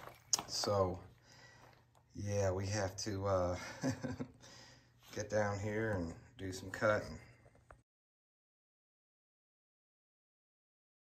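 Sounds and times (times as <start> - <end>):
man speaking: 0.4 - 1.2, 2.1 - 4.2, 5.1 - 7.4.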